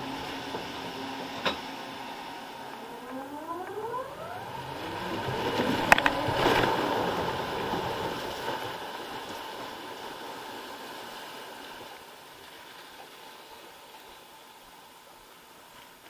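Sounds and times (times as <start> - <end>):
rushing water and wind: 0.0 - 16.0
loud water splash: 1.6 - 11.9.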